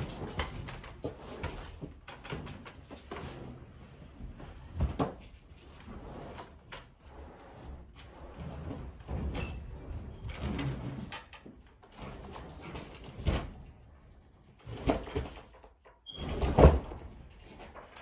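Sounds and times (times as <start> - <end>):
washing machine bumping and scraping: 7.8 - 11.3.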